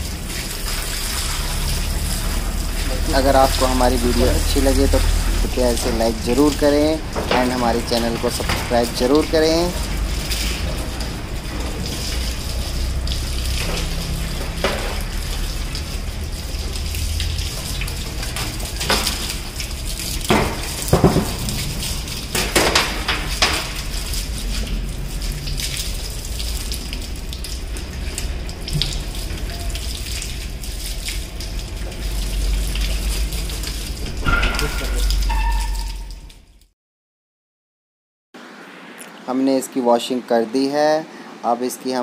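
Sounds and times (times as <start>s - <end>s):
hose water spraying on sheet metal: 0.0s - 36.2s
knocks on metal: 20.3s - 21.6s.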